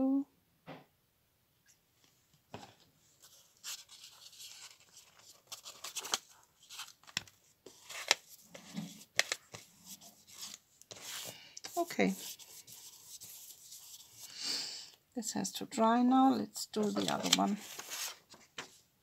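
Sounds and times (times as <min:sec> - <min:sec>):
paper rustling and tapping: 0:06.8 - 0:08.2, 0:09.1 - 0:09.7, 0:16.8 - 0:18.8
paintbrush brushing on paper: 0:09.8 - 0:14.3.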